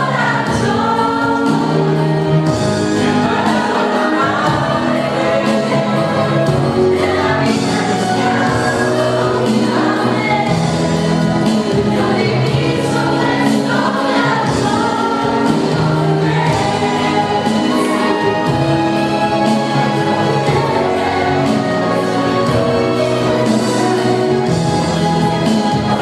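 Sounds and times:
choir singing long notes: 0.0 - 26.0
instrumental backing: 0.0 - 26.0.

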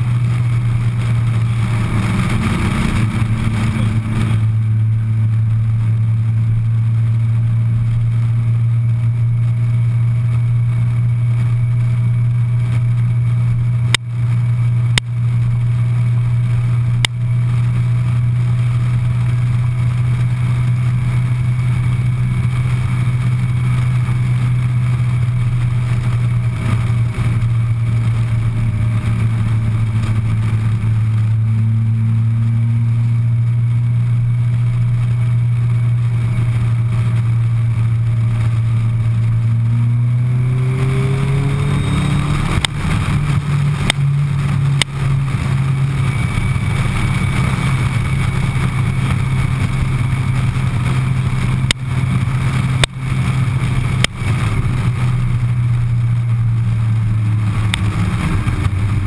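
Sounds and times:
motorcycle engine cruising: 0.0 - 59.0
wind rushing: 39.6 - 56.0.

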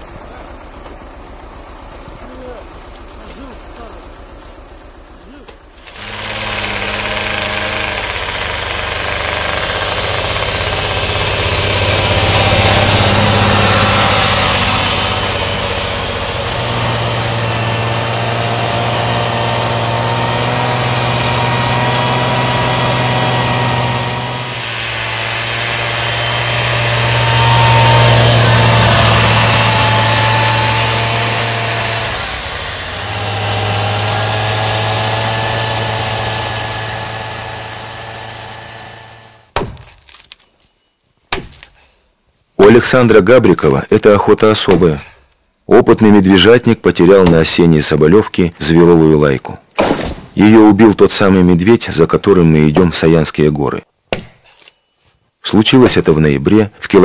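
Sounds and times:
snowmobile engine running: 0.0 - 39.5.

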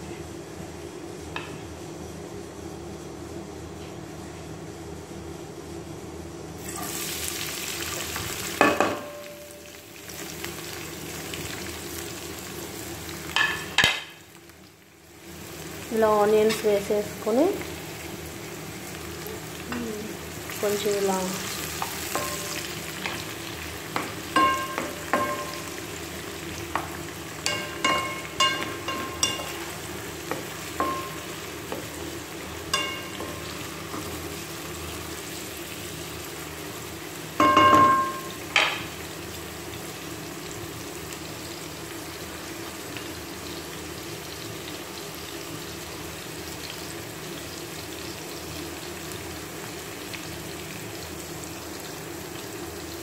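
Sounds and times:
onions sizzling in hot oil: 6.5 - 53.0
wooden spatula knocking on pan: 8.6 - 9.2, 24.0 - 25.7, 30.3 - 31.9, 37.4 - 38.8.

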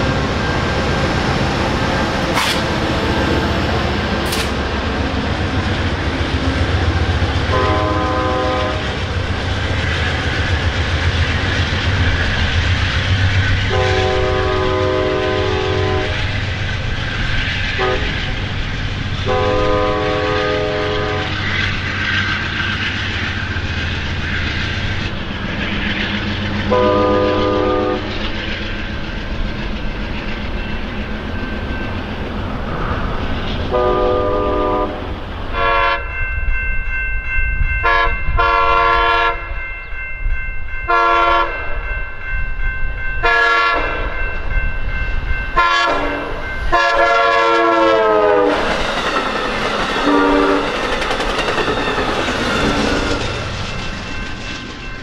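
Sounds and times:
train wheels clattering on rails: 0.0 - 34.4, 47.9 - 55.0
diesel locomotive engine rumble: 0.0 - 55.0
multi-note air horn: 7.5 - 8.8, 13.7 - 16.2, 19.3 - 21.3, 26.7 - 28.1, 33.7 - 36.0, 46.7 - 48.5
train horn blasts: 7.5 - 9.0, 13.7 - 16.3, 17.8 - 18.2, 19.2 - 21.4, 26.7 - 28.2, 33.7 - 36.2, 37.8 - 39.6, 40.9 - 41.7, 43.2 - 44.1, 45.6 - 48.6, 50.1 - 50.7.

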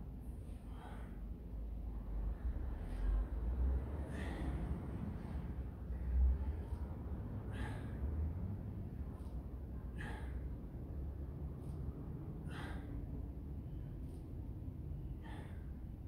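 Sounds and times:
low background rumble: 0.0 - 16.0
man breathing hard: 0.3 - 1.9, 2.5 - 16.0.

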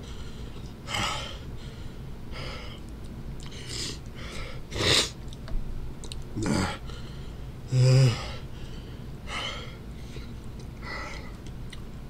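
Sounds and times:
man breathing hard through mouth: 3.4 - 5.2.

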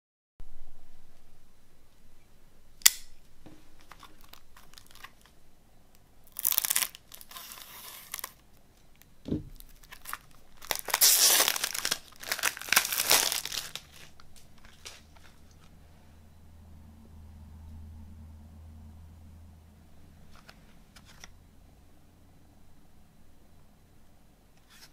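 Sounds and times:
plastic shrink wrap tearing: 3.8 - 5.3, 6.3 - 8.4, 9.6 - 15.5
dull knock: 9.3 - 9.6.

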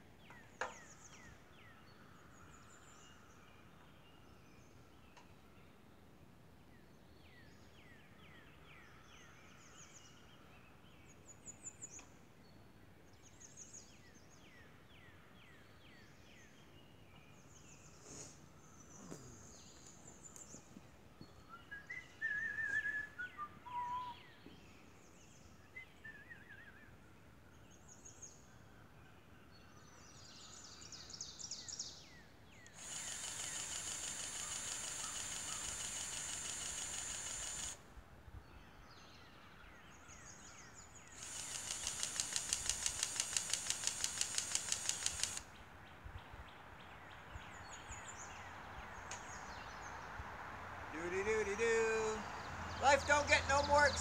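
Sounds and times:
songbirds chirping and singing: 18.8 - 37.6, 50.9 - 54.0.

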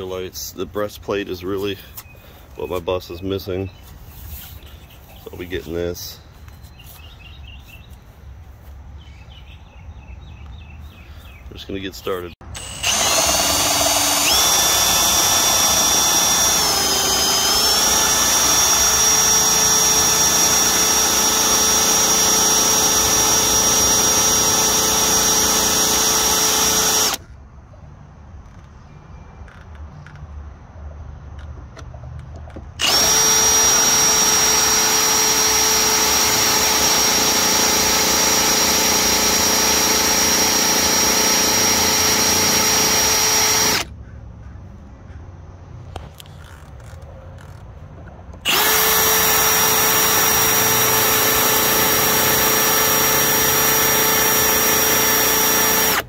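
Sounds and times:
power drill motor whine: 12.5 - 27.2, 32.8 - 43.9, 48.4 - 56.0.

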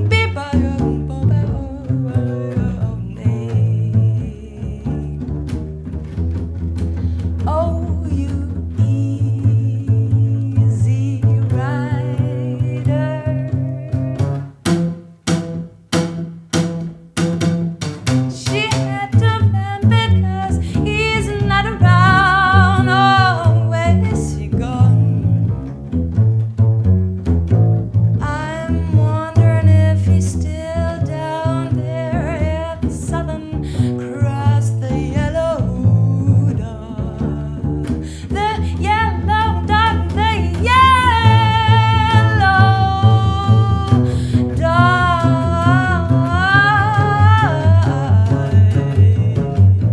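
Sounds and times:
woman singing with vibrato: 0.0 - 5.3, 7.4 - 14.4, 18.3 - 25.6, 28.2 - 49.9
double bass: 0.0 - 49.9.

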